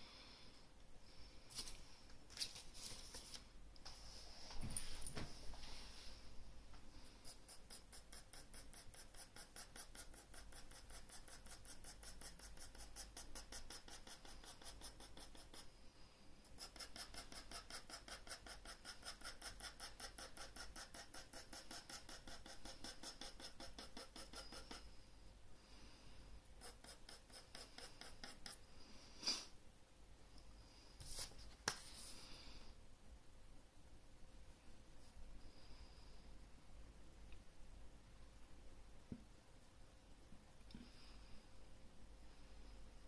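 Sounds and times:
pencil hatching on paper: 7.2 - 15.7, 16.6 - 24.9, 26.6 - 28.6.

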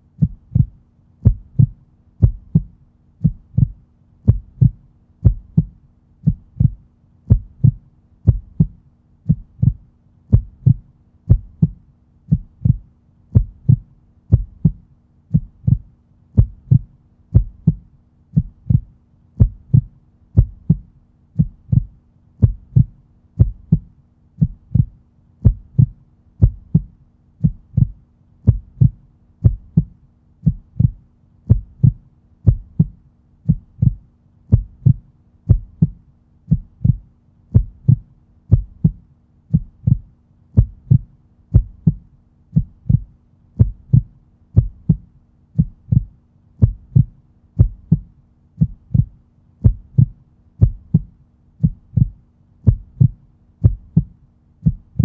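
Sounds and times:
heartbeat thumping: 0.2 - 55.0.

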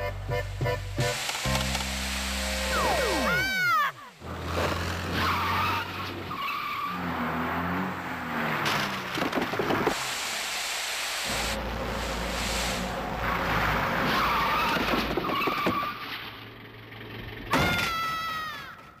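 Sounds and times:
sled scraping over snow: 0.4 - 10.2
falling whistle-like glides: 2.6 - 3.9.

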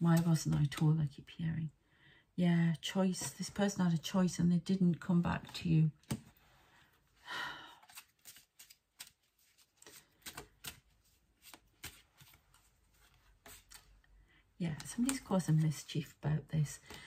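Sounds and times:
cards snapping and rustling: 7.8 - 12.7.

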